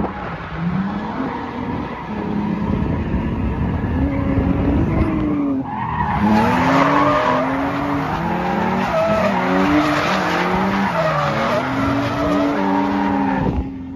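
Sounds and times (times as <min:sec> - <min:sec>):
car engine revving: 0:00.0 - 0:13.9
tyres skidding and squealing: 0:00.0 - 0:13.9.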